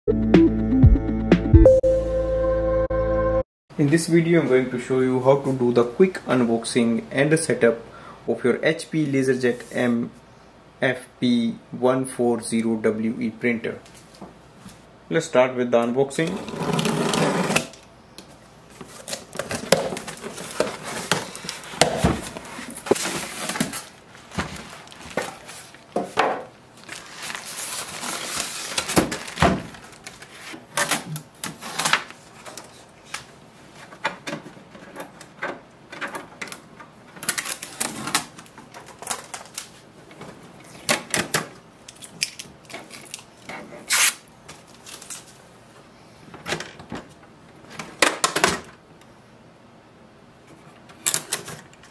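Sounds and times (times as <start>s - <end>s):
packaging and paper rustling: 18.7s - 26.0s, 26.7s - 33.1s, 41.9s - 45.4s.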